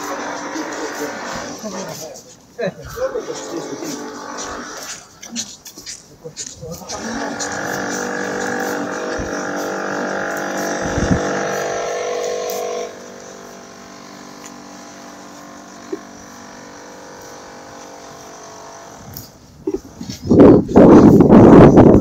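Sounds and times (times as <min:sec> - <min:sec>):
steady machine hum: 0:06.9 - 0:20.0.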